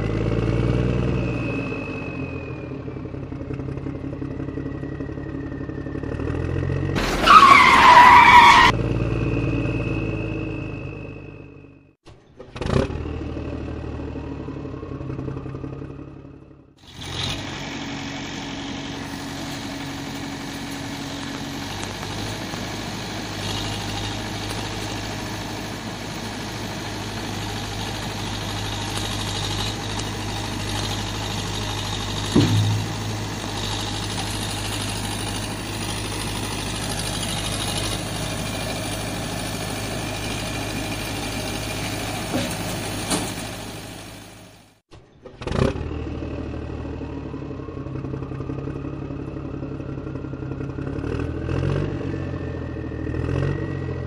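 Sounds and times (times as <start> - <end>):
vehicle engine humming: 0.0 - 44.8
loud knock: 32.4 - 33.7.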